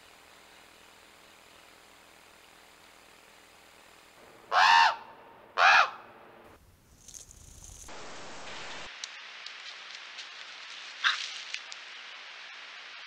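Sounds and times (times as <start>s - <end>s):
crow cawing: 4.5s - 6.0s.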